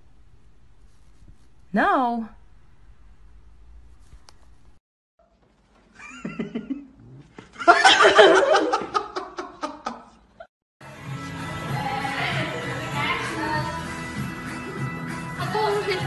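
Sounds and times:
loud human laughter: 6.0 - 10.2
music: 10.8 - 16.0.

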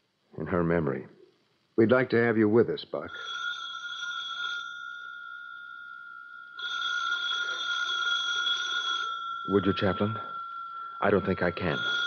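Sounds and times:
telephone bell ringing: 3.1 - 12.0.

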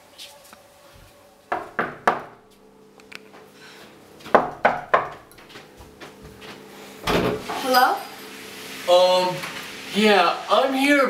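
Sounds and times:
knocking on wooden door: 1.5 - 2.4, 4.3 - 5.2.

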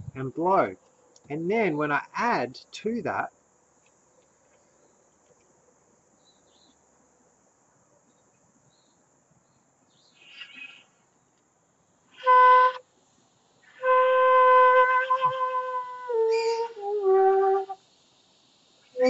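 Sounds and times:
flute notes: 12.2 - 12.8, 13.7 - 17.8.

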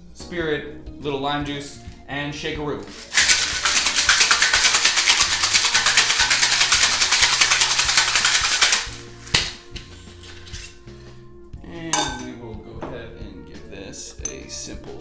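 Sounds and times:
background music: 0.0 - 15.0
ice rattling in cocktail shaker: 3.0 - 9.0.

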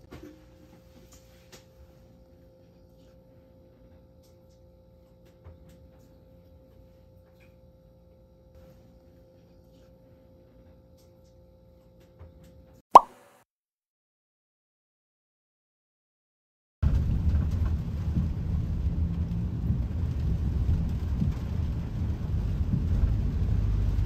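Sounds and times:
thin steady hum: 0.0 - 13.4.

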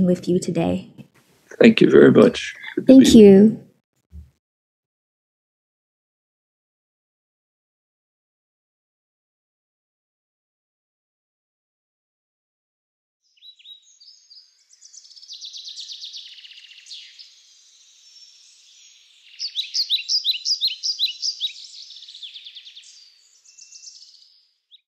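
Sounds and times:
songbirds chirping and trilling: 13.2 - 24.9.

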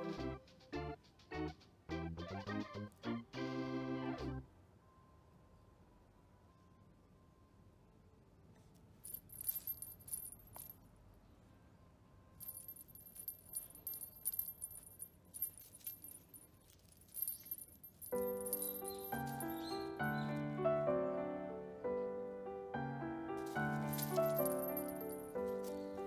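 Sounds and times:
small jingle bell jingling: 9.0 - 10.8, 12.4 - 20.4, 23.4 - 26.0.

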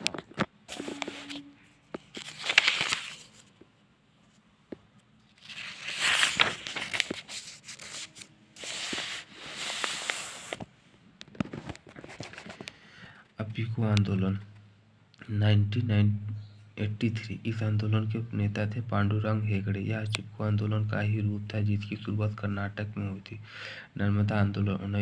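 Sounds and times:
book pages rustling: 0.0 - 3.6, 5.2 - 10.7, 11.3 - 12.7.

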